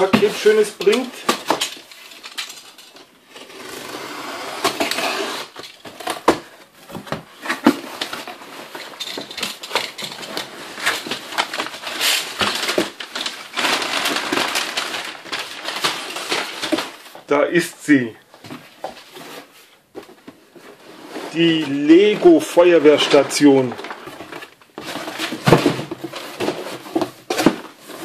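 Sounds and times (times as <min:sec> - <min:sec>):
packing paper rustling: 0:00.0 - 0:03.7, 0:04.7 - 0:28.0
utility knife slitting packing tape: 0:03.4 - 0:05.7.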